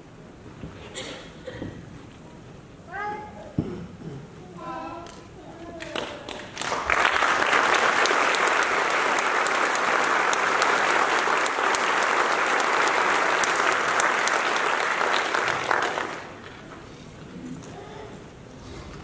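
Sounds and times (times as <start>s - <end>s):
audience applauding: 5.8s - 16.7s.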